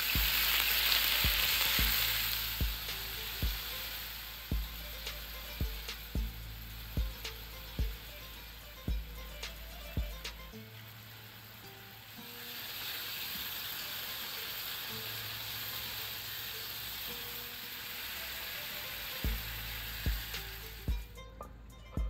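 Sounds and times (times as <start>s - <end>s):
chicken sizzling in a frying pan: 0.0s - 21.1s
low thumps: 0.1s - 0.6s, 1.2s - 3.8s, 4.5s - 8.2s, 8.9s - 10.5s.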